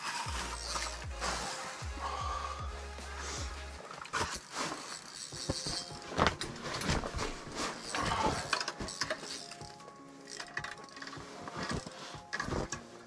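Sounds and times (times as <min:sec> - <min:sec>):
fishing reel ratchet clicking: 0:04.3 - 0:06.6, 0:07.8 - 0:12.4.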